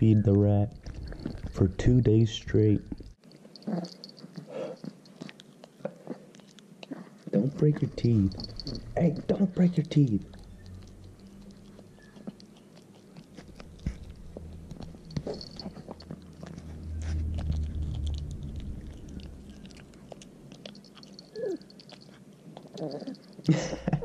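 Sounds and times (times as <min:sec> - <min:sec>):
dog gnawing and crunching bone: 0:00.3 - 0:23.7
low rumble: 0:08.2 - 0:12.0, 0:13.4 - 0:20.8.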